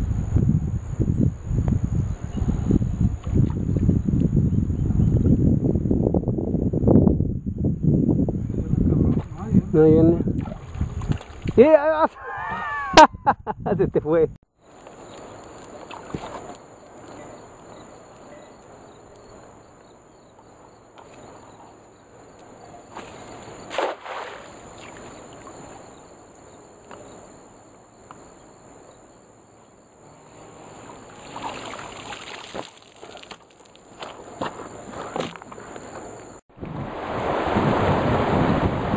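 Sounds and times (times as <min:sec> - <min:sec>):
net splashing into water: 0:10.4 - 0:11.6, 0:22.9 - 0:25.5, 0:31.1 - 0:34.2
water streaming from net: 0:22.9 - 0:25.6, 0:31.1 - 0:33.7.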